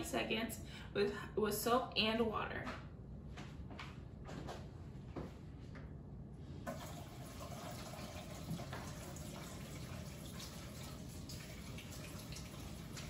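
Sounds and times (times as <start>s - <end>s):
water running into metal sink: 6.7s - 13.0s.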